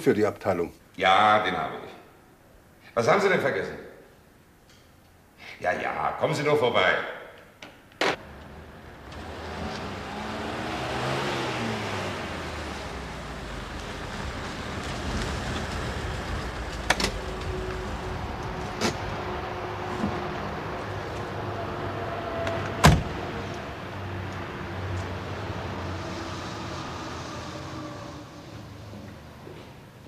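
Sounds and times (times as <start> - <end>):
car door slamming: 22.6 - 23.2.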